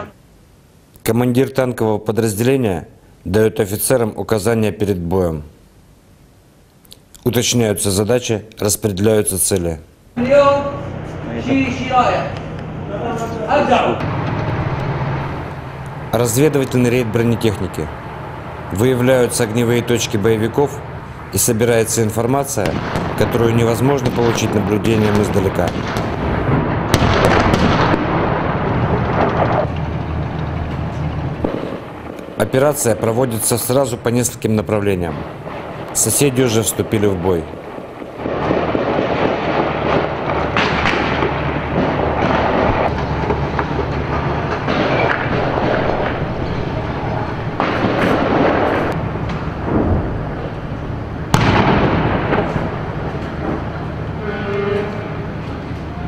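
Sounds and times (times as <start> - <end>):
continuous loud rumble: 0.0 - 56.0
sudden loud blasts: 10.2 - 56.0
gunfire and explosions: 14.0 - 54.2
gunfire cracks: 22.6 - 29.8, 37.8 - 46.6, 47.5 - 49.0, 51.3 - 53.6.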